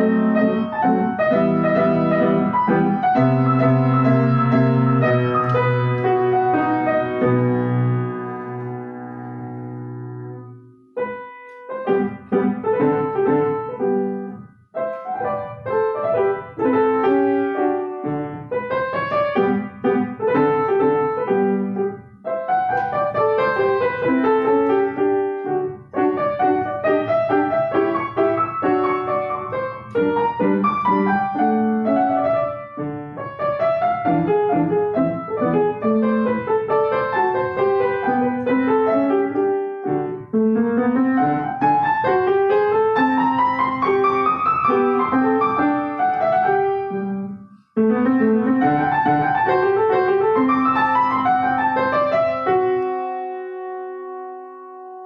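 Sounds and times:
solo piano classical piece: 0:00.0 - 0:55.0.

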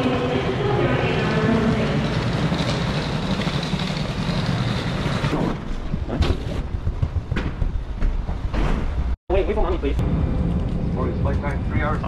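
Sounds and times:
low mechanical rumble: 0:00.0 - 0:12.0.

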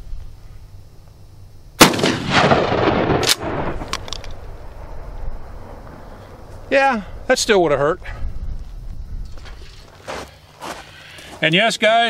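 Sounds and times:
shotgun blast echoing: 0:01.8 - 0:04.8.

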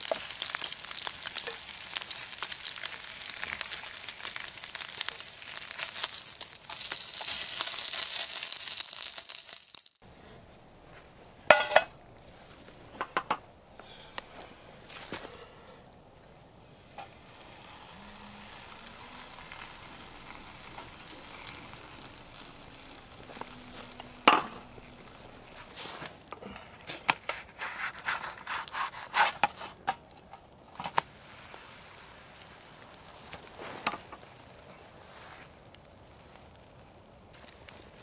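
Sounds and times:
batter sizzling in oil: 0:00.0 - 0:10.0, 0:16.5 - 0:38.0
sharp clicks and scrapes: 0:26.8 - 0:31.1.

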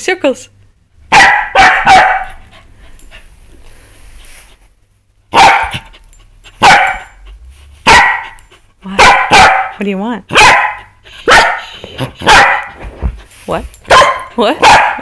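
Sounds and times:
dog barking: 0:01.1 - 0:02.4, 0:05.3 - 0:05.9, 0:06.6 - 0:07.2, 0:07.8 - 0:12.8, 0:13.9 - 0:15.0.

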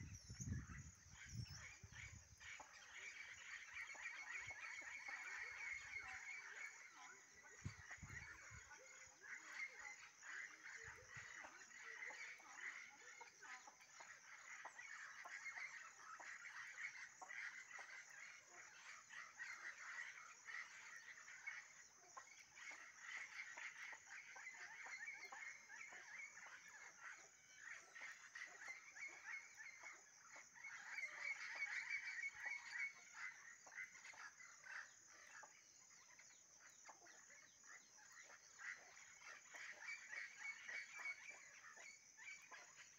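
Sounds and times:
rapid chirping calls: 0:00.0 - 0:12.8.

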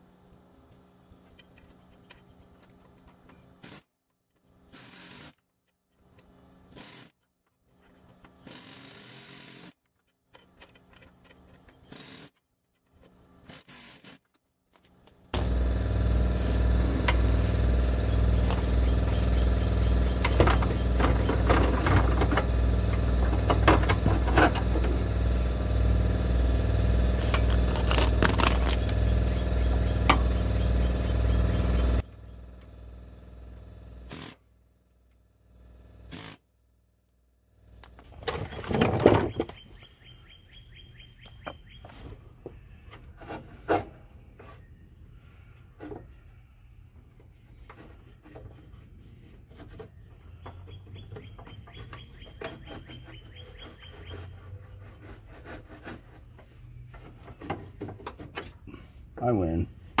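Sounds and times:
pneumatic air hammer rattling: 0:01.4 - 0:03.9, 0:04.5 - 0:34.5, 0:35.6 - 0:36.5, 0:49.4 - 0:58.9
faint tool handling: 0:27.1 - 0:30.2.

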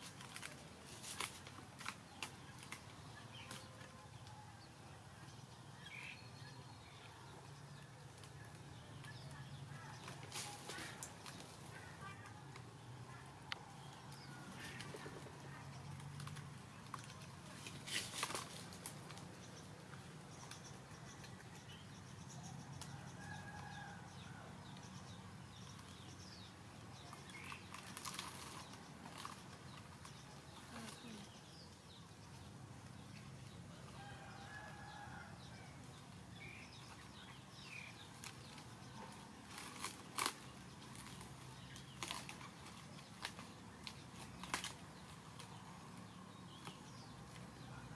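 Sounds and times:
rustling and handling noises: 0:00.0 - 0:04.3, 0:08.1 - 0:21.5, 0:27.0 - 0:31.5, 0:36.7 - 0:47.7.

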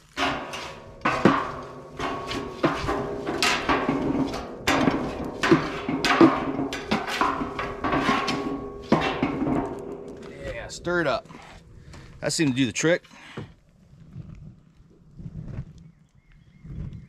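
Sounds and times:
pitchfork scraping in metal barrel: 0:00.0 - 0:11.6.

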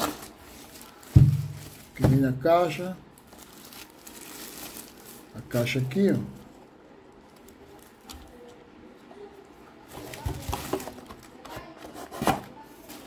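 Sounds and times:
packaging rustling and scraping: 0:00.0 - 0:02.3, 0:03.2 - 0:05.3, 0:09.9 - 0:13.0.

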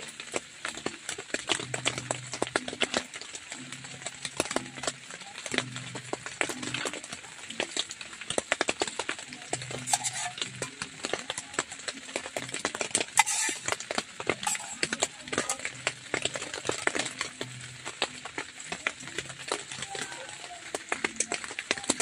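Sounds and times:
spoon scraping in metal pot: 0:09.5 - 0:11.7, 0:12.3 - 0:18.2.

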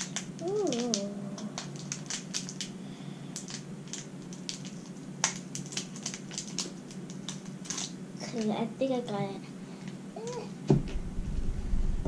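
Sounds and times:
plastic bag crackling: 0:00.0 - 0:02.8, 0:03.4 - 0:08.0.

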